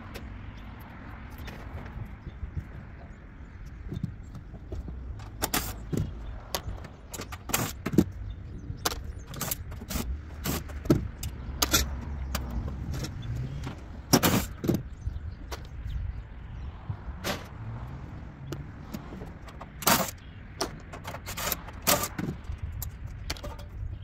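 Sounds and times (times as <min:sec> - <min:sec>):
metal clanks and clinks: 0:07.1 - 0:13.3, 0:19.2 - 0:24.0.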